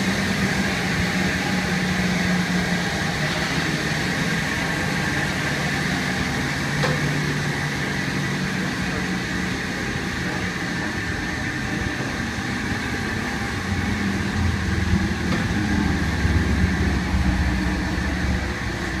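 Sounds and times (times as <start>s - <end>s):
dryer blowers rushing: 0.0s - 19.0s
low hum: 9.8s - 19.0s.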